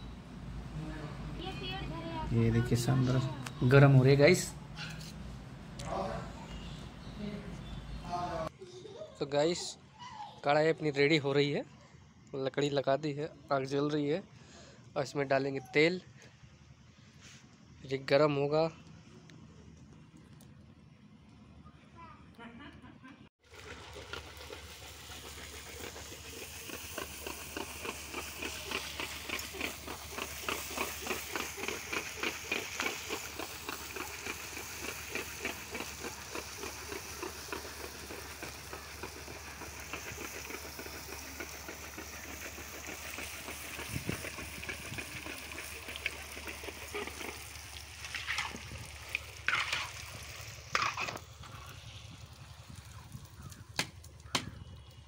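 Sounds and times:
dough frying in hot oil: 0:23.4 - 0:55.0
ladle stirring in pan: 0:23.5 - 0:52.9.

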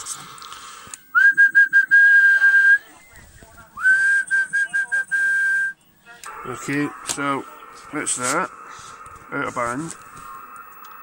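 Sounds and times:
person whistling high note: 0:01.1 - 0:02.9.

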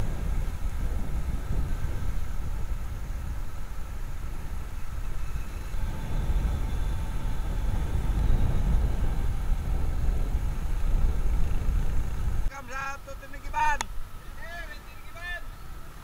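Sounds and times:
vehicle engine rumble on road: 0:00.0 - 0:12.5
road and wind noise: 0:00.0 - 0:16.0.

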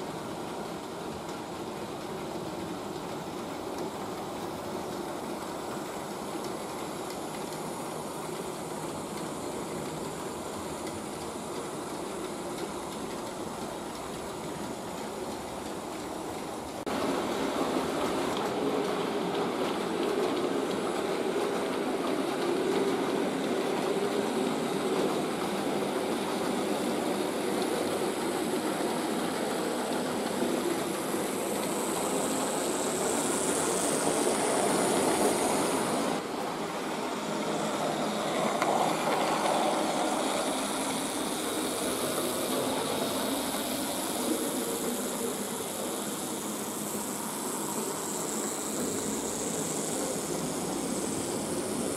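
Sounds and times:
wheels rattling on rails: 0:00.0 - 0:51.9
electric motor hum: 0:29.4 - 0:36.2, 0:37.3 - 0:51.9.

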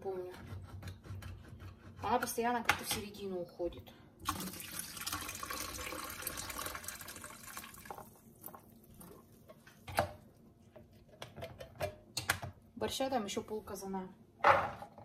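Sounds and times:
tap water running: 0:04.2 - 0:09.2.

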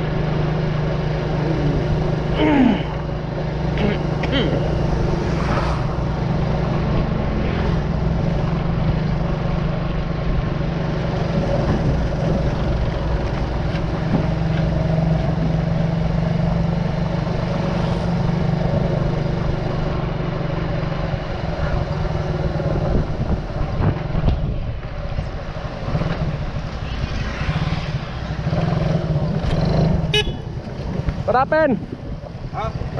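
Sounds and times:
wind and road noise: 0:00.0 - 0:32.9.

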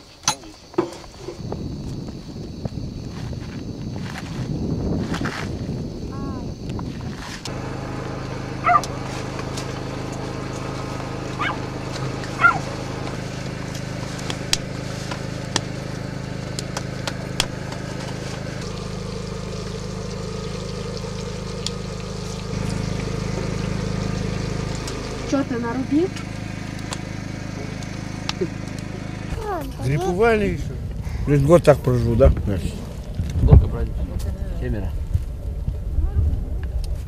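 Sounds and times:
low motor hum: 0:01.3 - 0:37.0
dog barking: 0:08.6 - 0:08.9, 0:11.4 - 0:11.6, 0:12.4 - 0:12.6.

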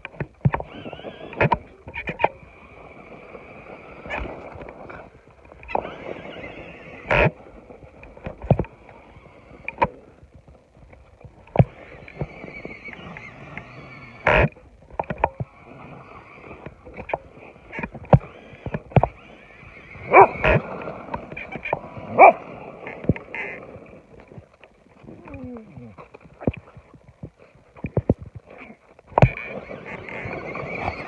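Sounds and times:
electric motors whining: 0:00.4 - 0:24.4, 0:29.2 - 0:31.0
dog yelping: 0:20.1 - 0:20.6, 0:22.1 - 0:22.5.

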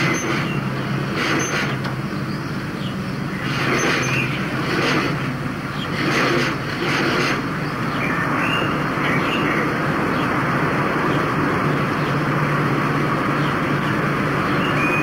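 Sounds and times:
small motorcycle engine running: 0:00.0 - 0:08.0.

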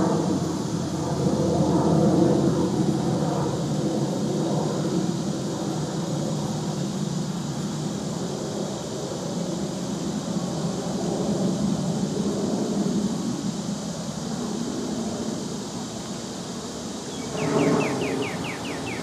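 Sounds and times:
high hiss: 0:05.0 - 0:19.0.

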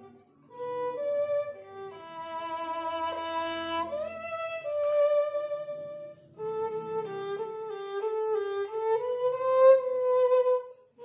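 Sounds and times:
bowed string instrument melody: 0:00.0 - 0:11.0.

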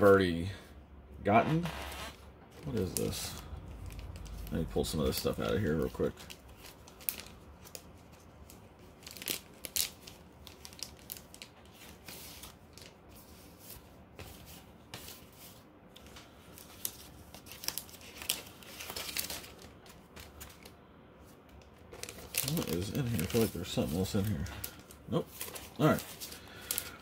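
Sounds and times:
packaging rustling and crinkling: 0:01.5 - 0:20.8, 0:21.4 - 0:27.0.

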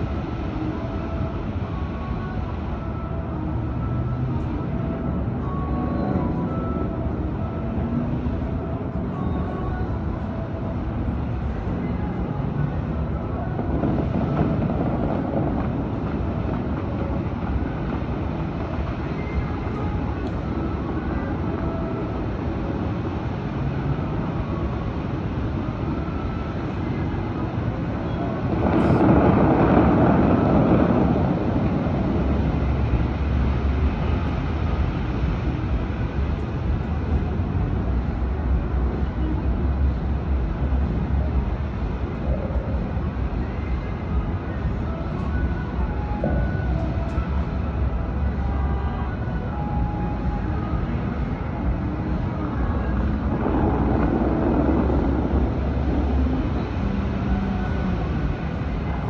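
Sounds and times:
distant traffic rumble: 0:00.0 - 0:59.0
faint music: 0:00.0 - 0:59.0
rush of noise: 0:00.0 - 0:59.0
wind: 0:00.0 - 0:59.0.

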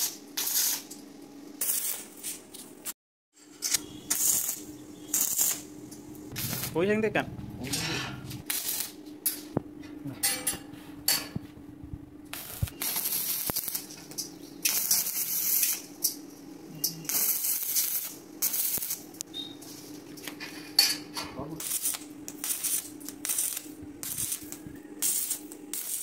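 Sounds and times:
welding arc crackling and hissing: 0:00.0 - 0:01.0, 0:01.6 - 0:02.9, 0:03.5 - 0:07.2, 0:08.3 - 0:09.0, 0:12.3 - 0:19.3, 0:21.5 - 0:26.0
steady low hum: 0:00.0 - 0:26.0.

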